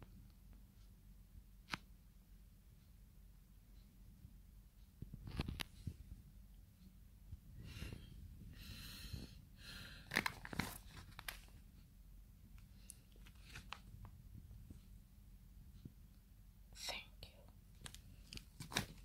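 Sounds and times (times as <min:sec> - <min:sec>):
plastic packaging crinkling: 0:10.1 - 0:11.6, 0:17.8 - 0:19.0.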